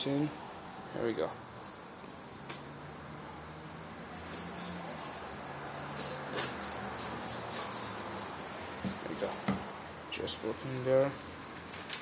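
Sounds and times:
squeeze bottle sputtering: 4.0s - 8.0s.

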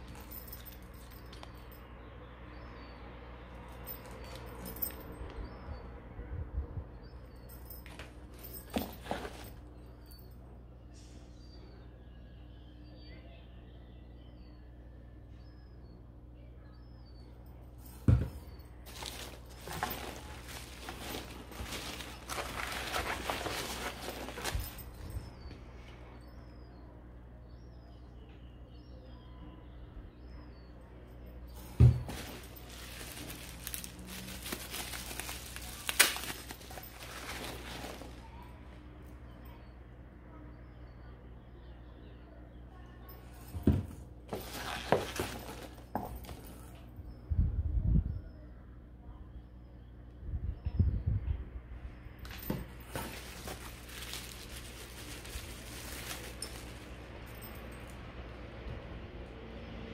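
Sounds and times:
bubble wrap crinkling: 18.9s - 25.0s, 32.0s - 38.3s, 52.8s - 57.3s.

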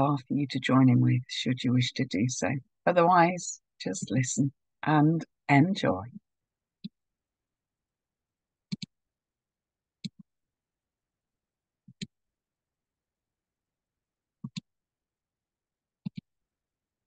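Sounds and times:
computer mouse clicking: 8.7s - 9.0s, 10.0s - 10.3s, 11.9s - 12.2s, 14.4s - 14.7s, 16.0s - 16.3s.

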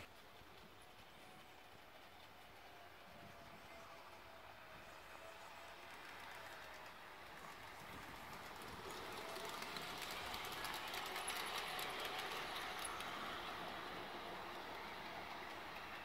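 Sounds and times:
wheels clicking on track: 0.0s - 16.0s
model train motor whirring: 5.0s - 16.0s.

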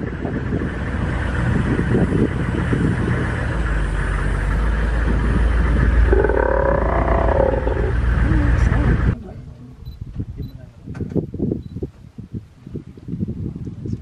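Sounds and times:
vehicle engine running: 0.0s - 9.2s.

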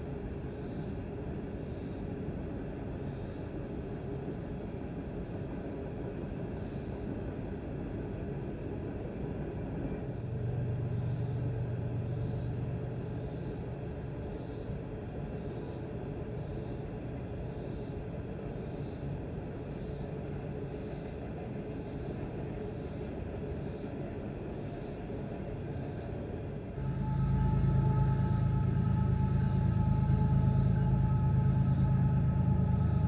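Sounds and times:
insects chirping: 0.0s - 2.1s, 2.9s - 3.6s, 10.0s - 33.0s
train rumbling across steel bridge: 26.6s - 33.0s.

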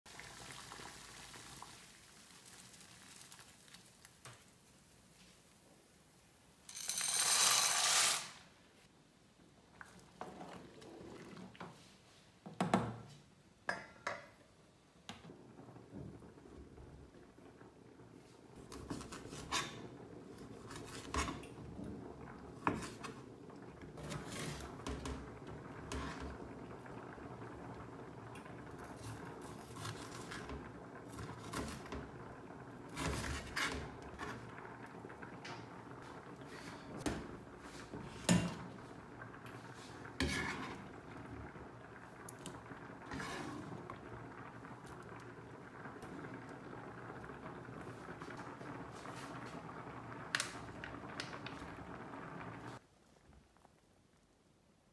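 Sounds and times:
knife scraping: 6.7s - 8.4s.

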